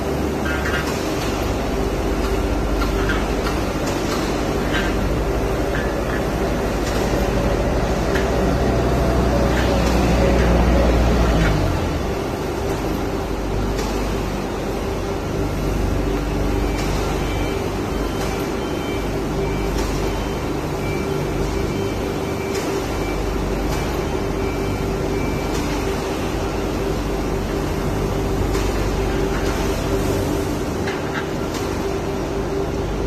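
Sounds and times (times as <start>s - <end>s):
factory machinery humming: 0.0s - 33.0s.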